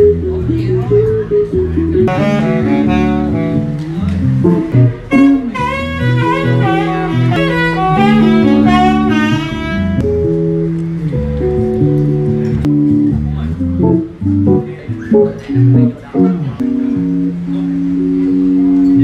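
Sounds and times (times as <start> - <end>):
electric guitar chords: 0.0 - 19.0
low bass line: 0.0 - 19.0
saxophone playing: 2.1 - 10.1.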